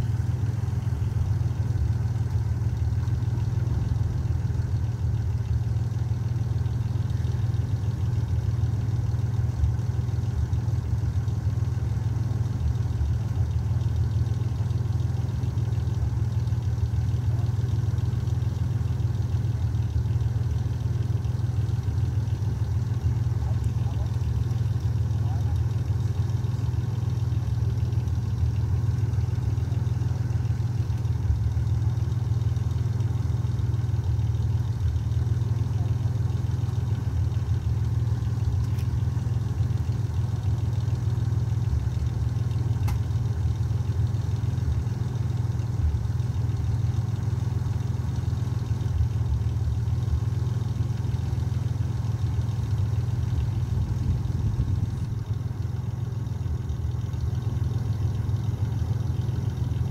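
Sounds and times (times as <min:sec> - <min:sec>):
vehicle engine idling: 0:00.0 - 0:59.9
faint ticks: 0:37.2 - 0:44.5.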